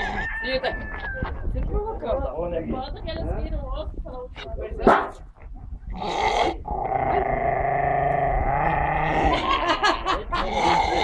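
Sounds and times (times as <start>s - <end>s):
dog growling and snarling: 5.2s - 9.6s, 10.4s - 11.0s.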